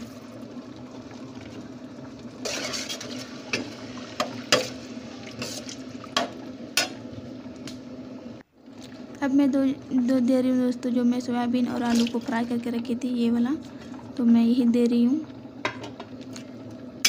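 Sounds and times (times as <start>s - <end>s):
liquid swish of stirring: 2.4s - 3.4s.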